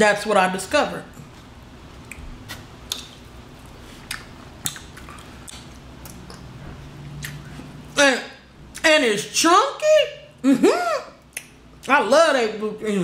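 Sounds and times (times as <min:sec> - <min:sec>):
low steady hum: 0:00.0 - 0:13.0
wet chewing smacks: 0:02.9 - 0:06.5.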